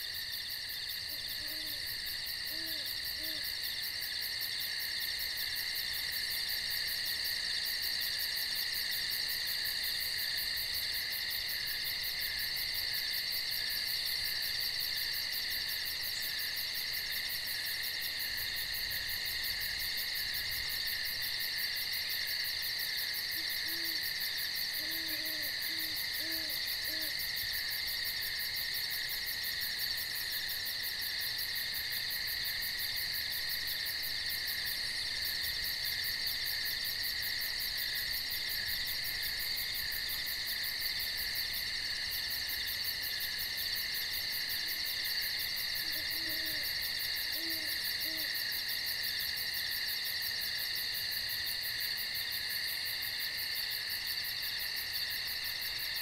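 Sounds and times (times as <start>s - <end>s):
night insects chorus: 0.0s - 56.0s
owl hooting: 1.1s - 1.9s, 2.5s - 3.5s, 23.4s - 24.0s, 24.8s - 27.2s, 45.8s - 46.7s, 47.4s - 48.4s.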